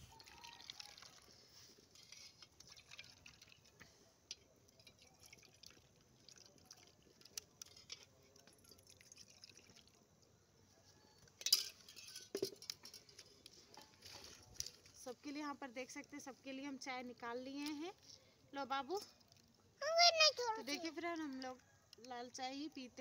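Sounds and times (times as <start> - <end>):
tea pouring and dribbling: 0.0 - 15.0, 17.5 - 22.8
light metal clinks: 11.0 - 14.8.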